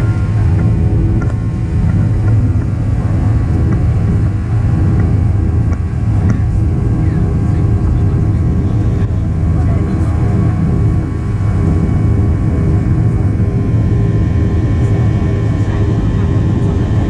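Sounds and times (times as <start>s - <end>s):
constant engine hum: 0.0s - 17.0s
jet engine rumble in cabin: 0.0s - 17.0s.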